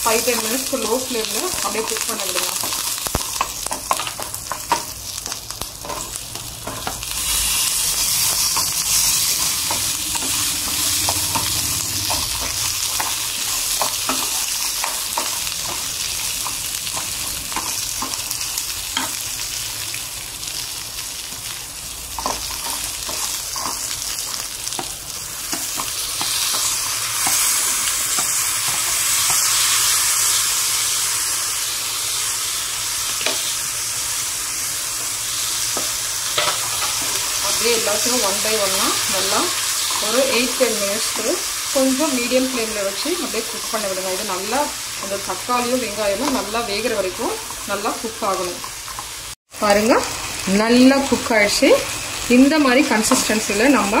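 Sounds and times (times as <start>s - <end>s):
food sizzling in hot oil: 0.0s - 54.0s
spoon stirring and clicking on pan: 24.7s - 29.5s.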